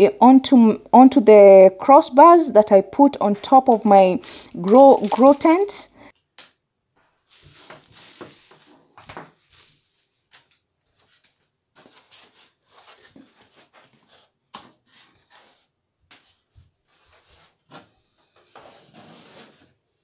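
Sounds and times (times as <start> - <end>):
packaging rustling and scraping: 3.7 - 5.8, 7.2 - 10.2, 11.0 - 15.7, 16.4 - 19.9.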